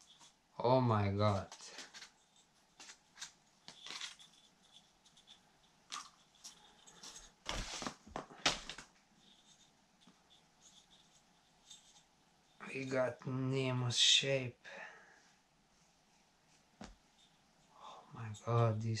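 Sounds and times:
tissue paper and cardboard rustling: 6.4 - 9.6.

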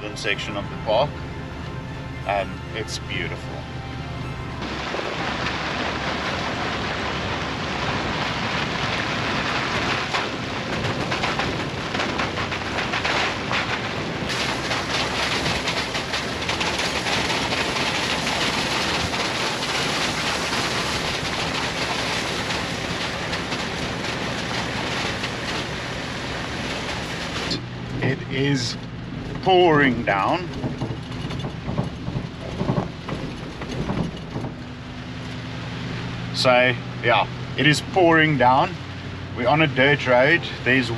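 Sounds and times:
rain: 0.0 - 40.9
tyres on wet muddy dirt road: 0.0 - 40.9
wind buffeting microphone: 4.6 - 28.2, 30.1 - 36.3
spattering of spray and raindrops: 4.6 - 40.9.

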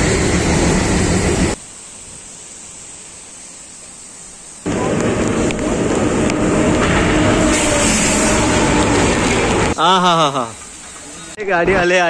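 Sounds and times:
passing train rumble: 0.0 - 1.6, 4.7 - 11.4
steady hiss: 1.5 - 5.8.

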